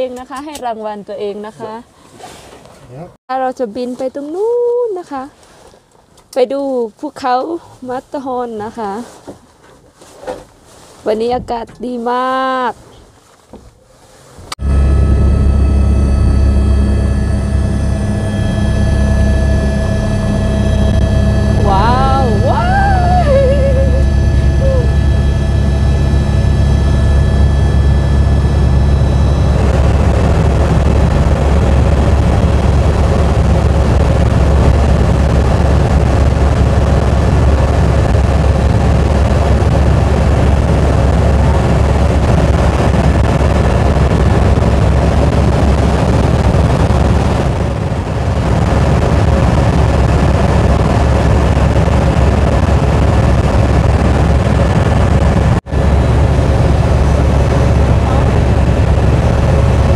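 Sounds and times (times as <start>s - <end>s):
helicopter engine and rotor drone: 14.6s - 59.9s.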